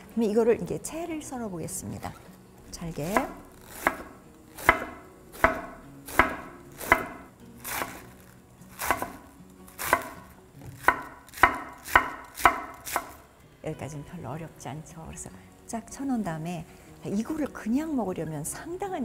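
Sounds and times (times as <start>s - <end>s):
knife chopping cabbage on wood: 2.8s - 13.2s.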